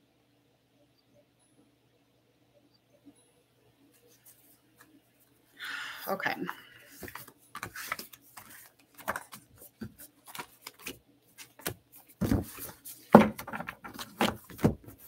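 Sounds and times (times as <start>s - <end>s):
cards clicking and tapping on table: 7.0s - 11.0s.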